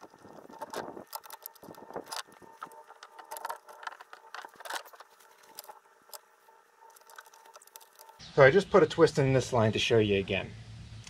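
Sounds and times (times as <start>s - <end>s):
rope clicking and rustling: 0.0s - 8.2s
faint steady hum: 0.0s - 11.0s.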